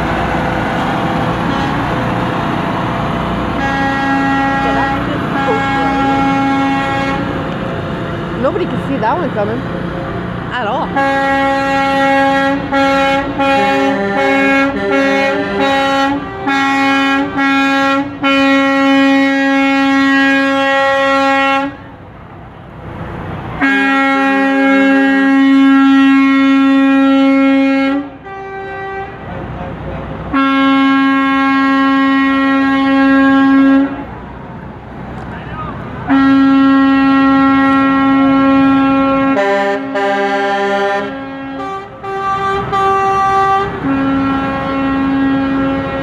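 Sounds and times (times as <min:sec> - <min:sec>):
truck air horn blaring: 0:01.4 - 0:02.1, 0:03.4 - 0:07.4, 0:10.7 - 0:21.9, 0:23.6 - 0:29.3, 0:30.3 - 0:34.2, 0:35.4 - 0:46.0.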